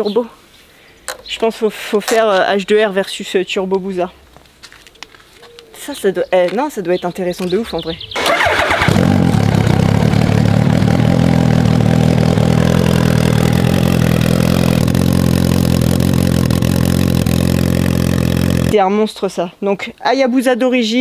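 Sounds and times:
motorcycle engine starting and idling: 7.7s - 18.8s.

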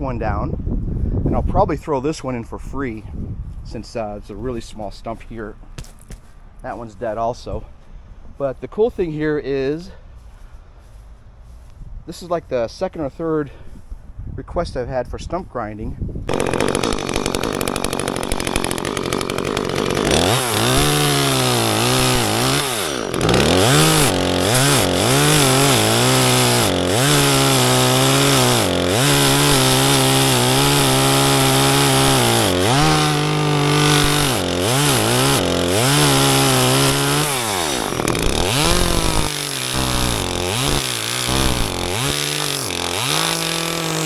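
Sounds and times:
chainsaw engine revving: 16.3s - 44.0s.

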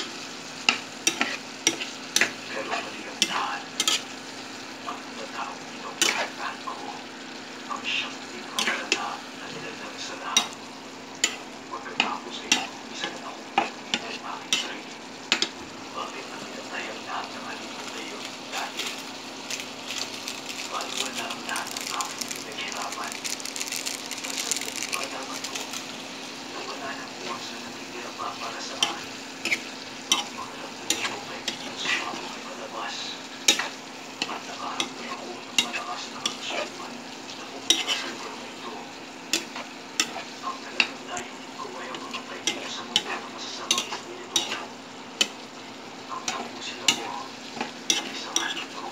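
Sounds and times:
utensil scraping a pan: 0.0s - 4.1s, 37.5s - 38.3s, 46.3s - 48.9s
spatula scraping a pan: 0.0s - 4.5s, 6.0s - 6.5s, 7.9s - 15.6s, 17.6s - 22.4s, 28.4s - 38.5s, 39.2s - 41.0s, 41.9s - 48.9s
food sizzling: 0.0s - 48.9s.

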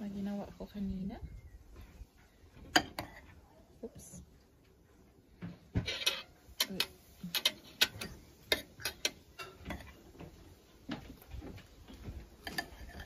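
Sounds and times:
metal spoon clinking on plate: 5.9s - 10.0s.

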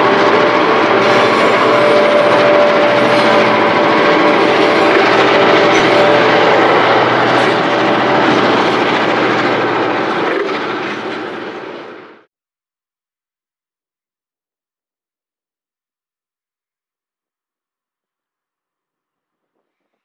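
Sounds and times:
steady ringing note: 0.0s - 11.6s
freight train rumbling past: 0.0s - 12.3s.

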